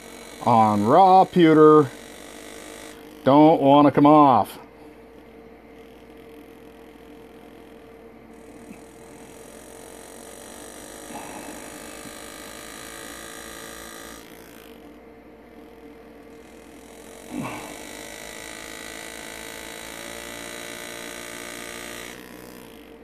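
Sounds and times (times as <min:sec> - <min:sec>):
high whining tones: 0:00.0 - 0:23.0
low electrical hum: 0:00.0 - 0:23.0.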